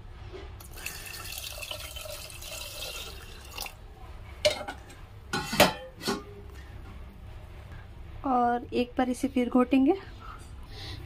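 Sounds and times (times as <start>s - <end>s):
water pouring into pot: 0.6s - 3.8s
kitchen utensils clattering: 4.4s - 6.4s.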